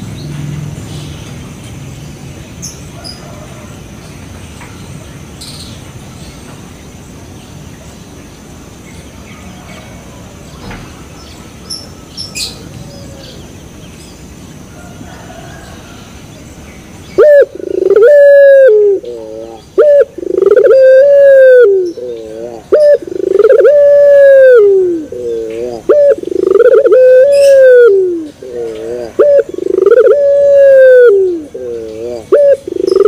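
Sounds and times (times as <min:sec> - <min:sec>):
dove cooing: 0:17.2 - 0:33.0.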